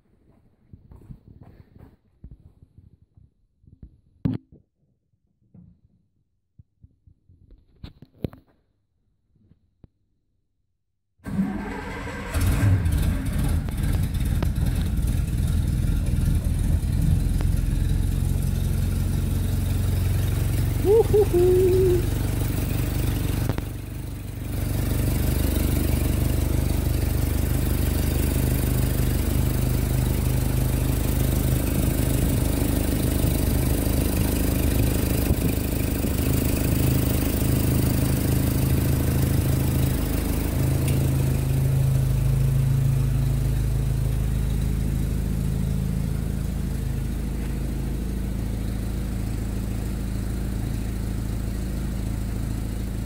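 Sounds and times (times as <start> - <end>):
car engine idling: 11.3 - 53.0.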